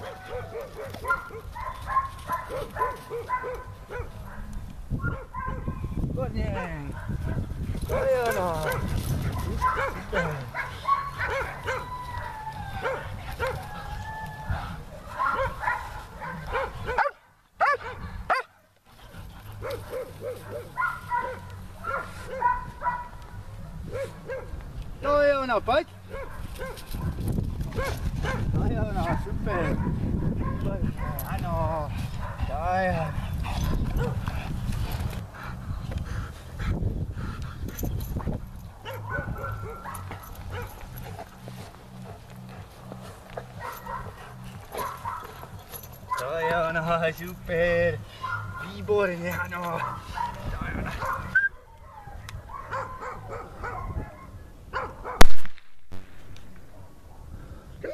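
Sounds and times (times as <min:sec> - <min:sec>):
dog yipping and whining: 0:09.6 - 0:13.9, 0:51.0 - 0:54.3.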